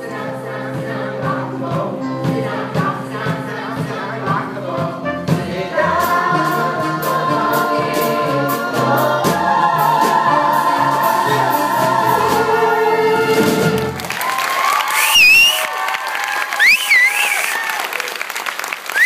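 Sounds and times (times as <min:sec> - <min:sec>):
choir singing in unison: 0:00.0 - 0:14.0
steady drum beat: 0:00.7 - 0:14.0
live band playing: 0:04.3 - 0:14.1.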